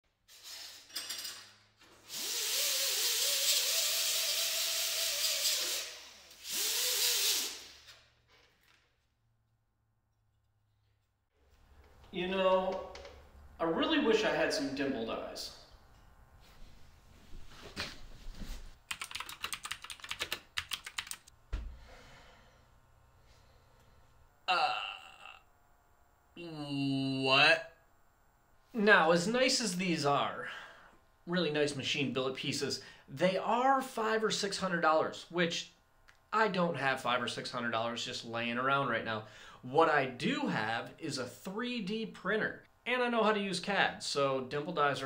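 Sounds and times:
pneumatic tool hissing and whining: 1.9 - 8.1
fast typing on mechanical keyboard: 18.9 - 21.3
dull thump: 21.5 - 21.8
man's short exclamation: 24.5 - 25.4.

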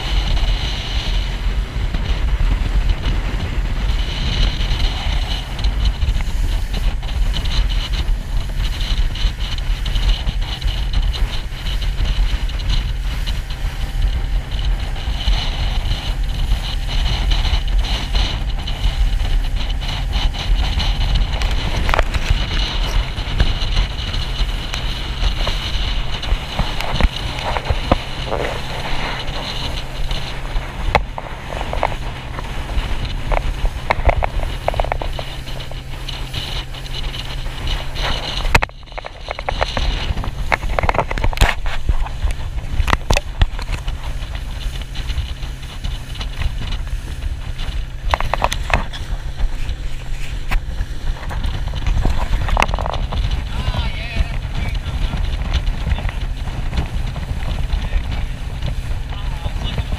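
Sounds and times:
outboard motor running: 0.0 - 59.9
water knocking against hull: 0.0 - 59.9
wind buffeting microphone: 0.0 - 59.9.

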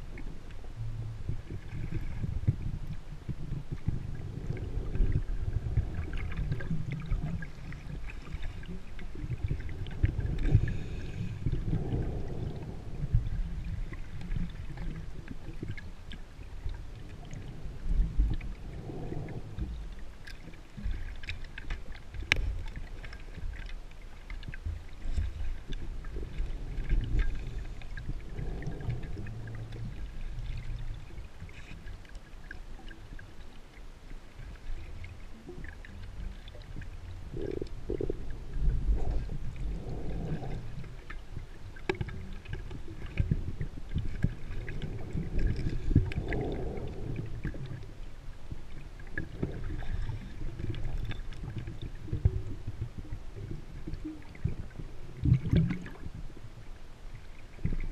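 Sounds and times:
scuba diver exhaling bubbles: 3.4 - 14.9, 17.0 - 19.9, 26.0 - 30.9, 37.2 - 41.1, 42.9 - 47.9
faint clicks: 19.4 - 28.1.

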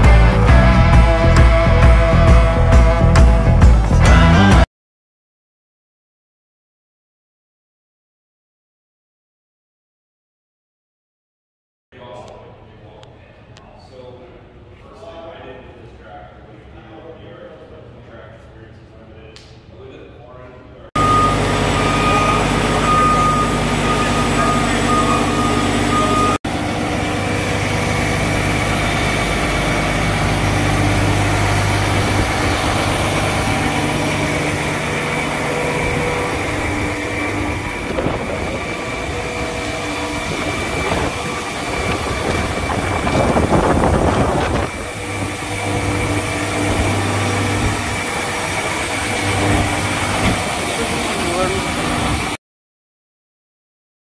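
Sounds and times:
tractor diesel engine idling: 21.0 - 42.6, 44.7 - 52.3.

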